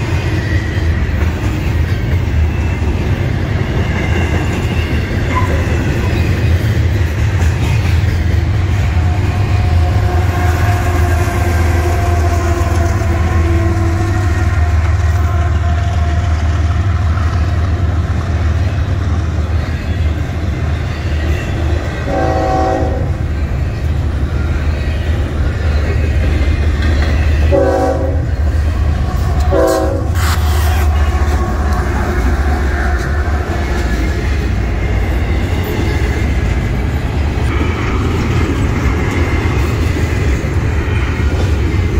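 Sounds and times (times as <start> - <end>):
freight train rumbling past: 0.0 - 41.9
train wheel clatter: 0.0 - 41.9
locomotive horn blasts: 9.0 - 16.6, 22.0 - 23.6, 27.4 - 28.4, 29.4 - 31.4.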